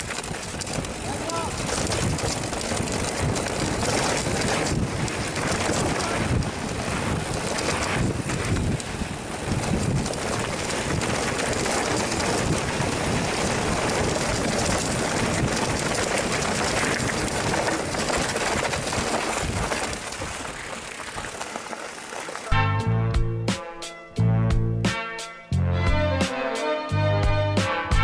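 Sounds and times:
wind on microphone: 0.0s - 20.7s
mountain bike rattling on dirt trail: 0.0s - 22.6s.

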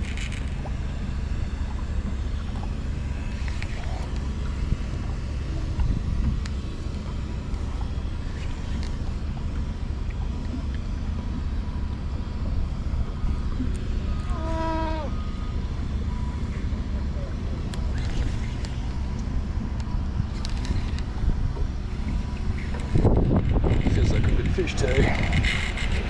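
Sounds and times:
outboard motor idling: 0.0s - 26.0s
wind on microphone: 5.6s - 6.5s, 20.1s - 26.0s.

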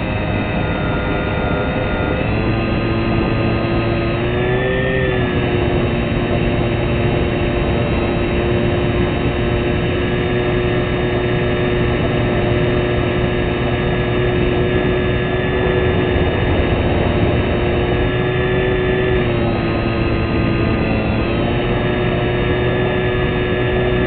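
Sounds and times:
small aircraft motor and propeller: 0.0s - 24.0s
wind rushing: 15.3s - 19.3s.

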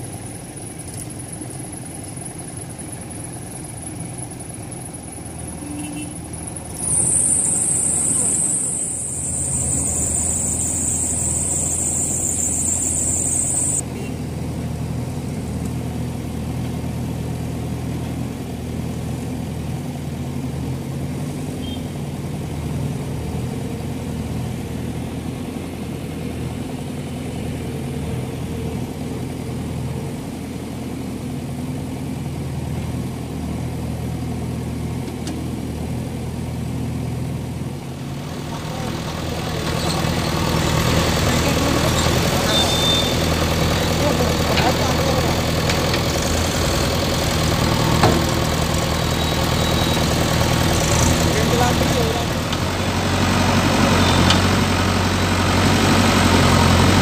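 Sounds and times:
backhoe diesel engines running: 0.0s - 57.0s
loud high hiss: 6.9s - 13.8s.

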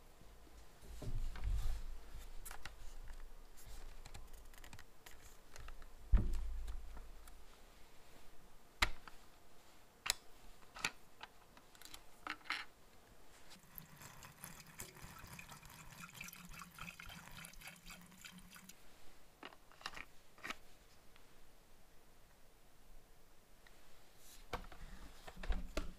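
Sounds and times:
fuel pouring through funnel: 13.6s - 18.8s.

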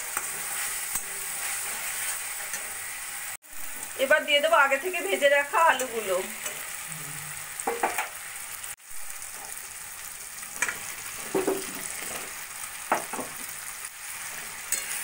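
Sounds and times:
spatula scraping and clinking: 0.0s - 3.0s, 14.3s - 15.0s
oil sizzling: 0.0s - 15.0s.

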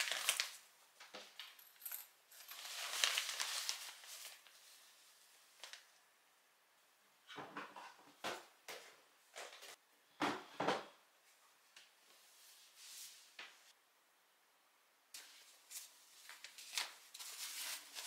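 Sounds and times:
cloth bag rustling: 2.4s - 4.5s.

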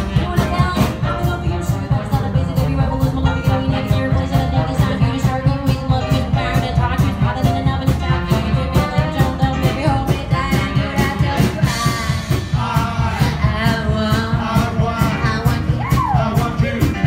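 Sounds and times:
jive band playing swing: 0.0s - 17.0s
woman singing lead: 0.0s - 17.0s
men singing backing vocals: 11.6s - 17.0s.

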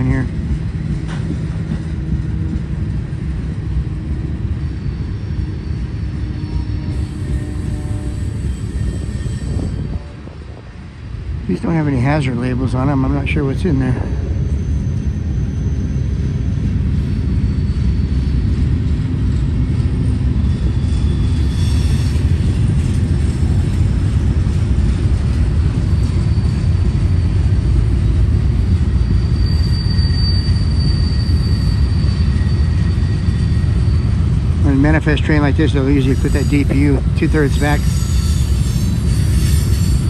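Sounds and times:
freight train wheels rumbling on rail: 0.0s - 40.0s.

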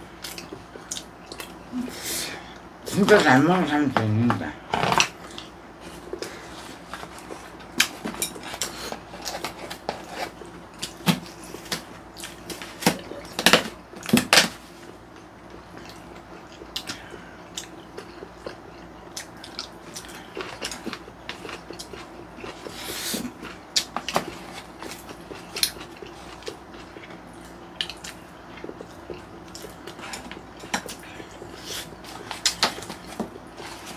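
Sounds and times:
chewing: 14.8s - 33.9s.

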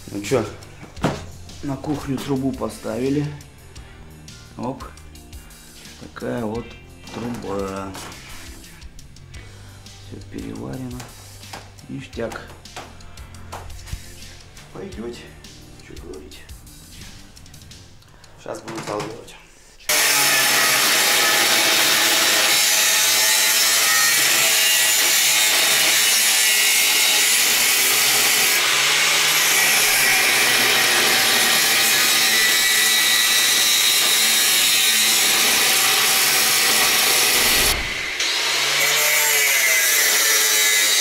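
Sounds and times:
angle grinder cutting metal: 19.9s - 41.0s.

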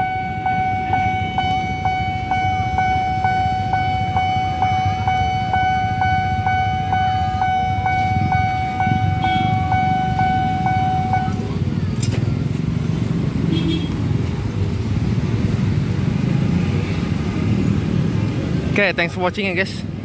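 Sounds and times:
level crossing bell ringing: 0.0s - 11.5s
motorcycles idling: 0.0s - 20.0s.

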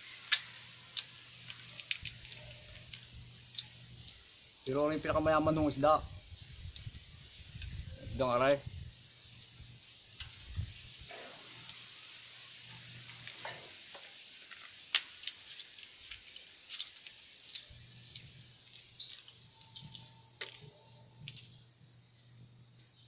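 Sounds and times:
plastic bag crinkling: 0.0s - 4.8s, 14.4s - 21.6s
faint hiss: 0.0s - 19.1s.

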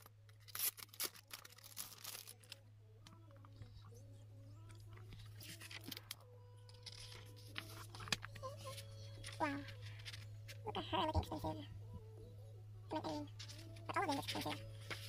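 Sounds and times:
rustling of paper packaging: 0.0s - 2.6s, 6.8s - 10.6s, 13.4s - 15.0s
low steady hum: 0.0s - 15.0s.

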